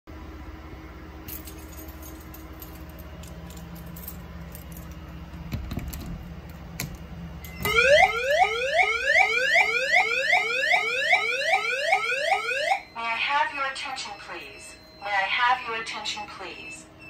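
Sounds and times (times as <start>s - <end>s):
rising sweep alarm tone: 7.4s - 16.8s.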